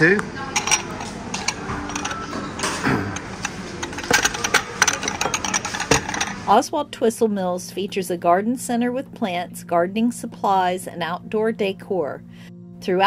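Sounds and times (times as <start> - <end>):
teacups clinking on saucers: 0.4 - 6.5.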